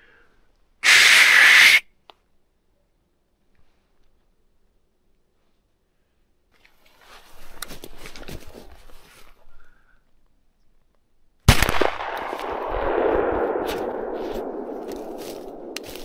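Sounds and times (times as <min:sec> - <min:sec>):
long rushing noise: 0:00.8 - 0:01.8
rustling through dry grass: 0:06.6 - 0:09.7, 0:12.2 - 0:16.0
shotgun shot: 0:11.5 - 0:16.0.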